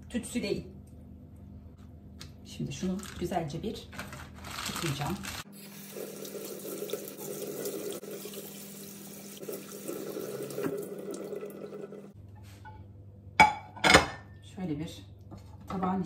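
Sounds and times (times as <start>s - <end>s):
tap water splashing: 9.4s - 11.7s.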